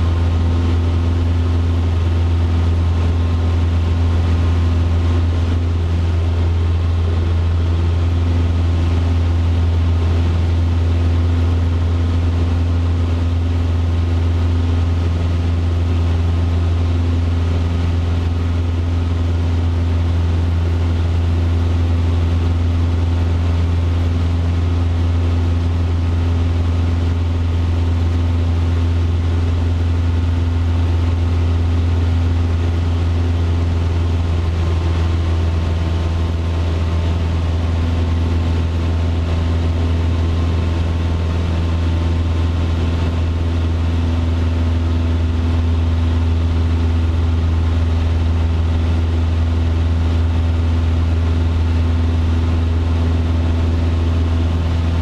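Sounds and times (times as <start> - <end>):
airplane engine and propeller droning: 0.0 - 55.0.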